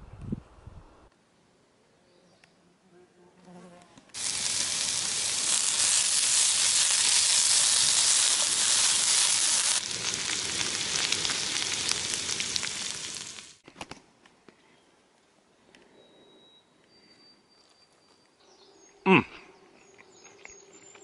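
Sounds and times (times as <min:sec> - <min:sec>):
vegetables sizzling in a pan: 0:04.2 - 0:13.6.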